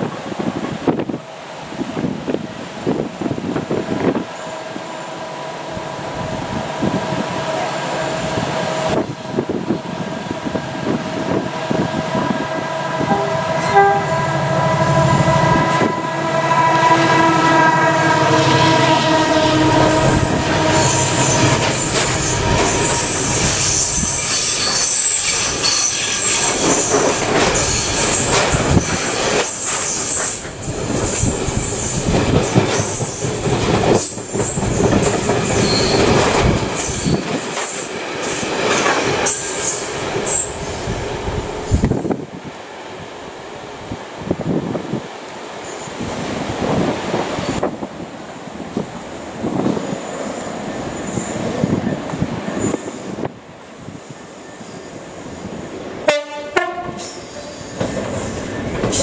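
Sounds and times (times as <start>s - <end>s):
diesel locomotive passing: 0.0s - 59.0s
wheel squeal: 19.9s - 32.1s, 34.0s - 40.9s.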